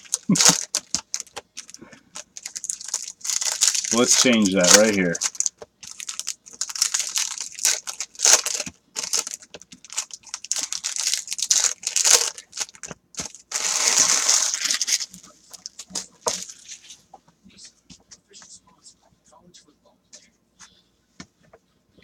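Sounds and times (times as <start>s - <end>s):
foil wrapper crinkling and tearing: 0.0s - 17.0s.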